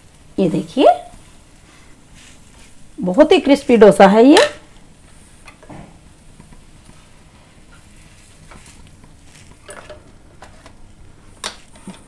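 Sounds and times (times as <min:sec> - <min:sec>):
faint sizzle: 0:00.0 - 0:12.0.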